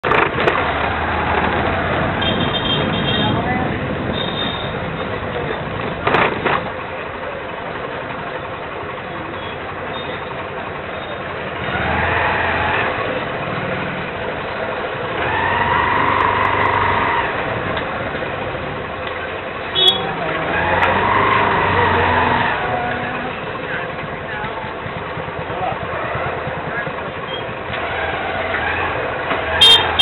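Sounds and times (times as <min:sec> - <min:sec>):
scooter engines passing: 0:00.0 - 0:30.0
hubbub of people: 0:02.9 - 0:11.4, 0:19.1 - 0:27.9.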